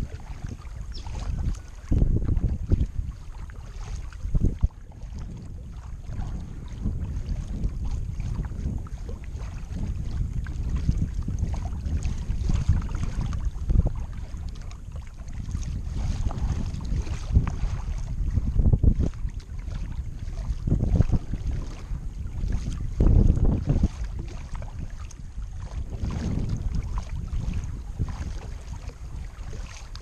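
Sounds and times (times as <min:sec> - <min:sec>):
kayak paddling water sounds: 0:00.0 - 0:30.0
wind buffeting microphone: 0:00.0 - 0:30.0.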